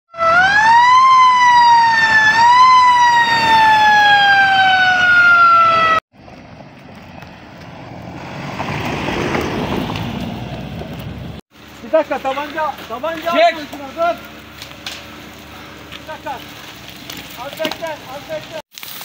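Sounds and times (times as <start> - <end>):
siren wailing: 0.1 - 6.0
pickup truck on dirt road: 1.4 - 19.0.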